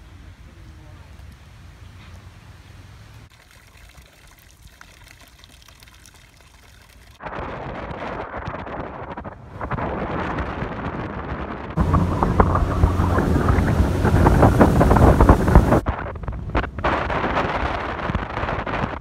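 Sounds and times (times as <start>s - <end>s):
water noise: 0.0s - 19.0s
wind rushing over microphone: 7.2s - 19.0s
boat engine: 9.6s - 18.9s.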